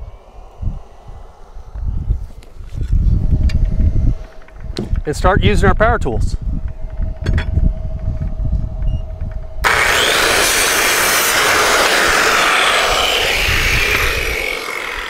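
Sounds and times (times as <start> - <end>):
circular saw cutting wood: 9.6 - 15.0.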